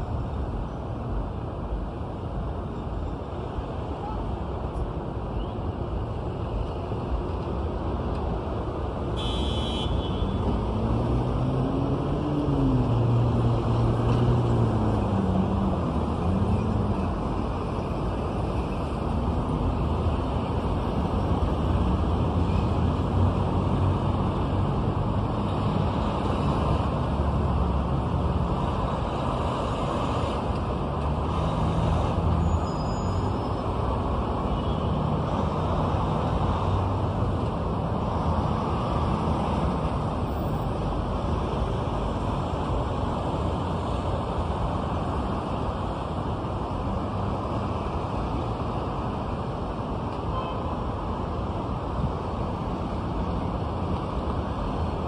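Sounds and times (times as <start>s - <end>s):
city traffic hum: 0.0s - 55.0s
brief high squeal: 32.4s - 33.6s.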